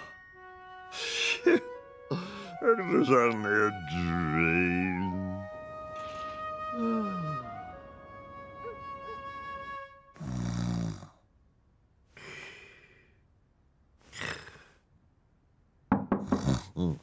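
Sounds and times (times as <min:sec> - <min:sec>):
cartoon snoring: 0:10.2 - 0:11.2, 0:14.1 - 0:14.8, 0:16.2 - 0:17.0.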